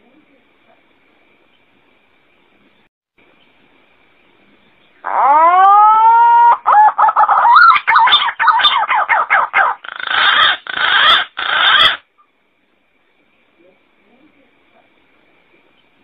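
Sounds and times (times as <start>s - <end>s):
pigeon calling: 5.0s - 12.0s.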